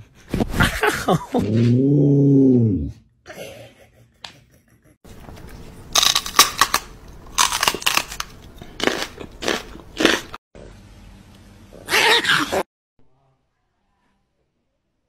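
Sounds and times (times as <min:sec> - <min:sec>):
loud crunching: 0:05.9 - 0:10.4.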